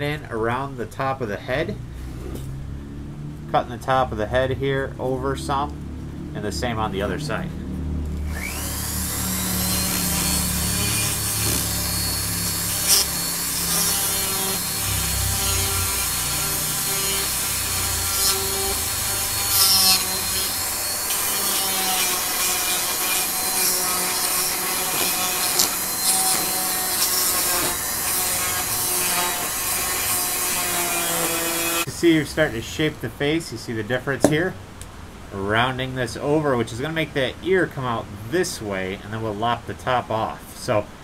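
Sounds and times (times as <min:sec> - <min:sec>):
burr scraping wood: 0:08.2 - 0:31.9
rotary carver whining: 0:08.2 - 0:31.9.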